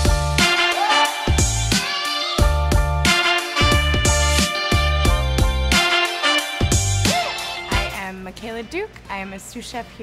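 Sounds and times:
instrumental music with beat: 0:00.0 - 0:08.0.

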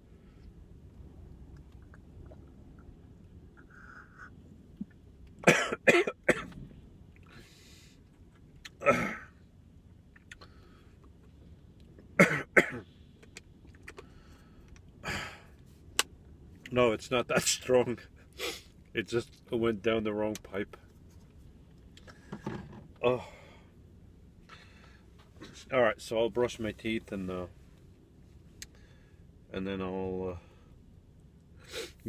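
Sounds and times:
man coughing: 0:05.4 - 0:06.5, 0:08.8 - 0:09.3, 0:12.2 - 0:12.8.

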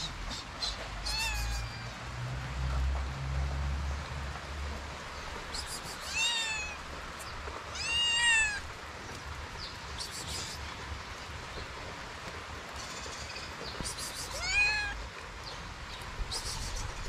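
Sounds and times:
kitten meowing: 0:01.0 - 0:01.9, 0:06.0 - 0:06.8, 0:07.8 - 0:08.7, 0:14.2 - 0:15.0.

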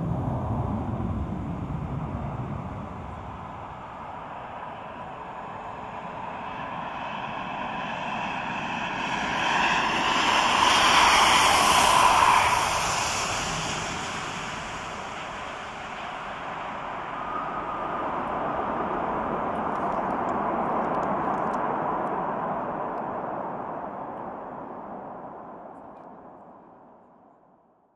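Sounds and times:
jet engine noise: 0:00.0 - 0:27.0.

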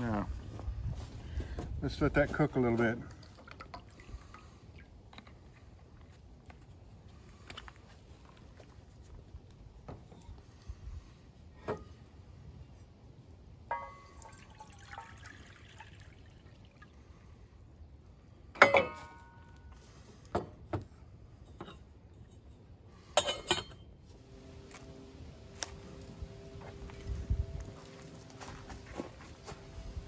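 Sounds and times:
metal cookware clanking: 0:18.6 - 0:19.4, 0:23.1 - 0:23.8.

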